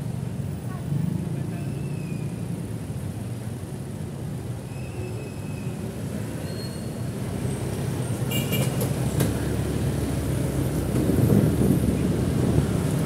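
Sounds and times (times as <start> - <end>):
street traffic rumble: 0.0 - 13.0
high squeal: 4.7 - 7.2.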